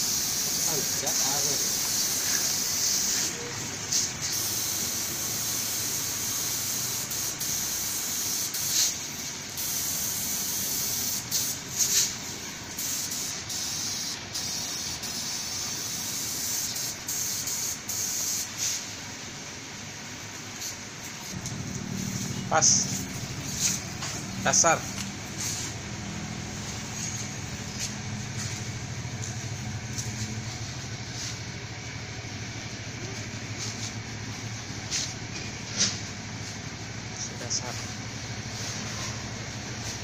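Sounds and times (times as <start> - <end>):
paint spray gun hissing: 0.0 - 19.0, 20.5 - 31.7.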